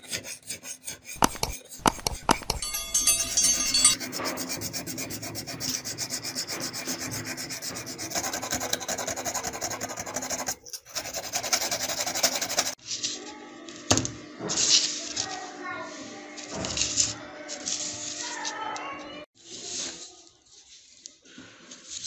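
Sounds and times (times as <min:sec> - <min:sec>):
hand sanding metal: 0:00.0 - 0:12.8.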